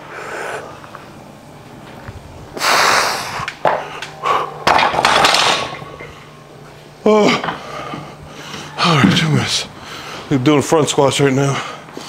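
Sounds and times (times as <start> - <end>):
person breathing hard: 2.6 - 4.6, 7.4 - 8.8, 9.8 - 10.3.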